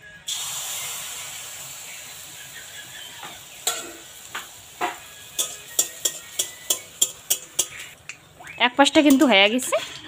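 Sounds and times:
batter sizzling in hot oil: 0.2 - 9.7
spatula clicking against pan: 5.4 - 8.2.

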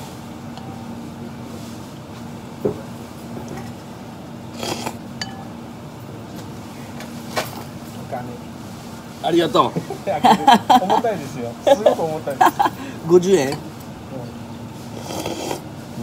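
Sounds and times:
steady low hum: 0.0 - 16.0
soup slurp: 4.6 - 5.0, 14.9 - 15.6.

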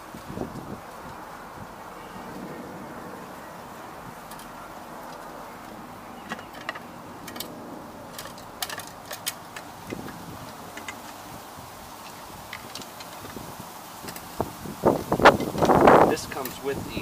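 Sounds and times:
steady background noise: 0.0 - 17.0
hard plastic parts clicking: 8.1 - 11.3.

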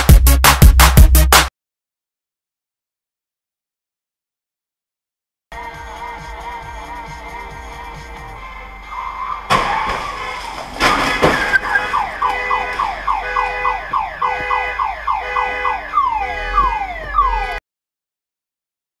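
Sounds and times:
car collision impacts: 9.5 - 14.6
car alarm chirping: 11.0 - 17.6.

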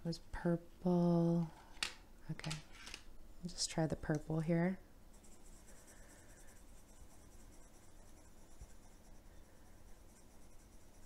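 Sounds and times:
pencil scratching on paper: 5.1 - 11.0.

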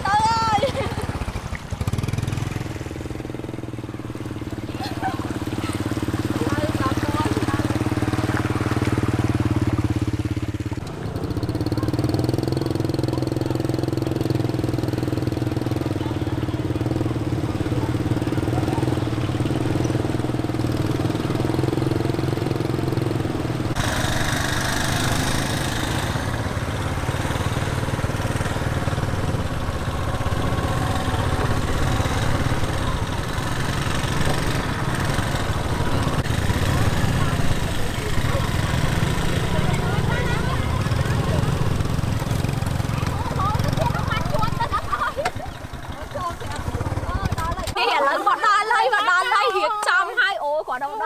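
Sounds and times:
small motorbike engines running: 0.0 - 51.0.

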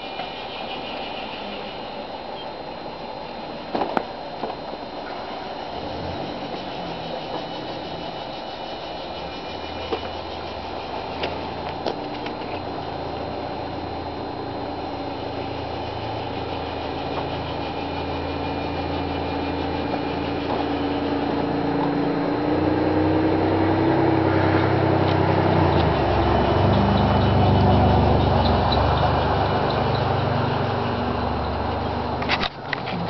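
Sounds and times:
small motor humming: 5.0 - 23.8.

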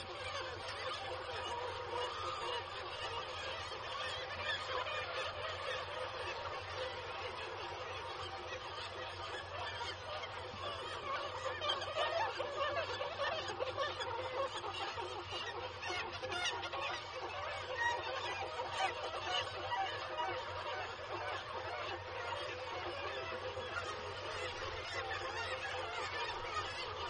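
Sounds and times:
seabird colony calling: 0.0 - 27.0.

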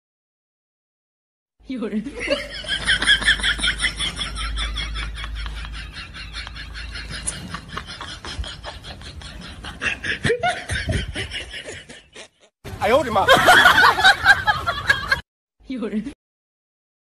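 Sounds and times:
high-pitched laughter: 2.1 - 12.5.

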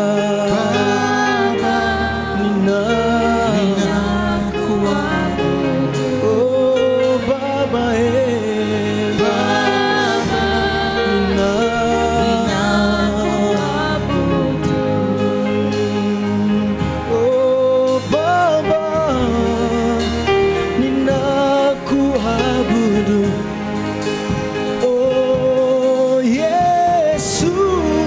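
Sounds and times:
band with drums and keyboard: 0.0 - 28.0
lead singer: 0.0 - 28.0
backing singers: 0.2 - 18.5.

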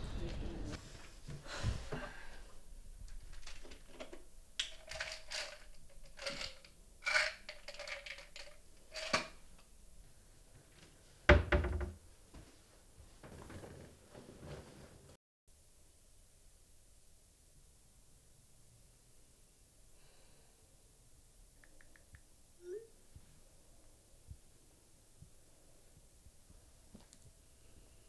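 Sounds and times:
plastic pill bottle clicking: 3.1 - 9.3.

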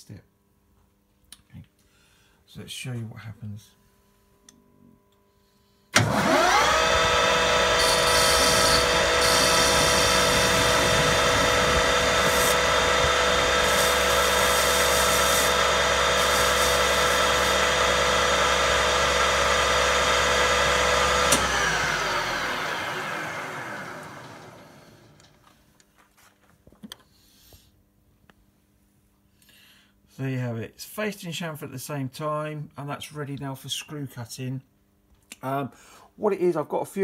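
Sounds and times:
hissing cutting tool: 6.0 - 25.2
metal lathe whining: 6.0 - 25.2.

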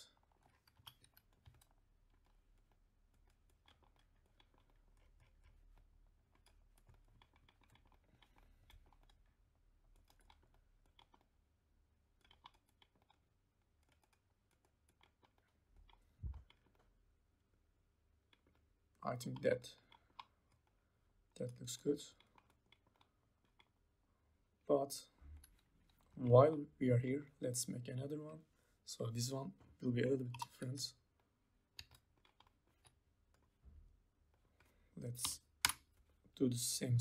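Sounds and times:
keyboard and mouse clicks: 0.0 - 11.4, 12.1 - 16.9, 30.0 - 30.8, 31.7 - 33.6, 34.3 - 36.2.

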